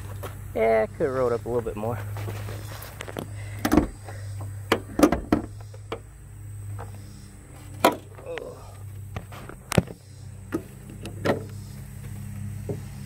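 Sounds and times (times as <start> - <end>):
steady low hum: 0.0 - 13.0
sharp clunks and knocks: 3.0 - 6.1, 7.8 - 8.3, 9.1 - 11.6, 12.6 - 12.9.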